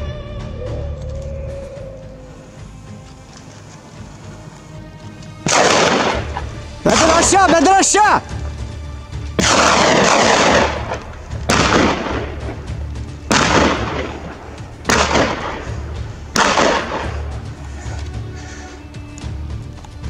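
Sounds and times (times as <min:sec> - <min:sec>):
echo rolling off mountainside: 0:02.0 - 0:20.0
gunshots: 0:05.4 - 0:08.2, 0:09.4 - 0:17.5.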